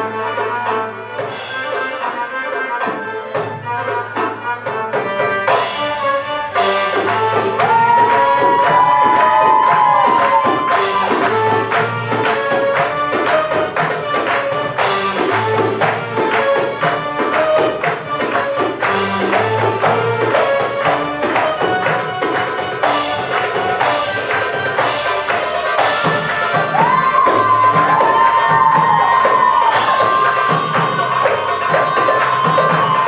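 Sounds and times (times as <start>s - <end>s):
hand drum rhythm: 1.2s - 33.0s.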